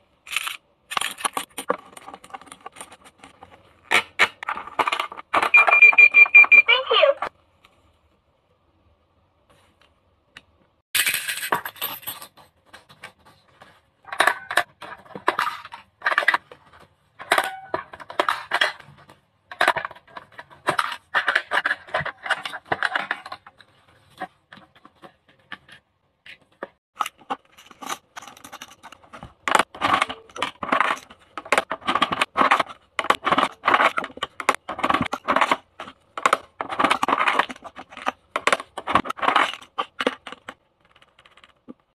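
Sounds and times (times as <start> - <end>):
toy buttons clicking: 5.5 - 6.9
toy cans rattling into basket: 17.2 - 23.6, 27.0 - 41.5.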